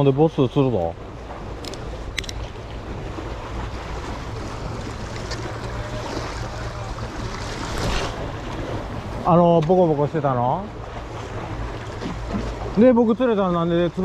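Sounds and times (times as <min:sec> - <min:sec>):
sea waves washing: 0:00.0 - 0:14.0.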